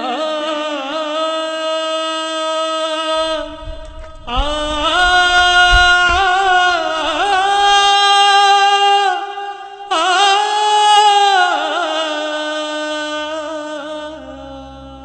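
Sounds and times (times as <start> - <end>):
person singing long wavering notes: 9.9 - 15.0
low drone: 13.5 - 15.0.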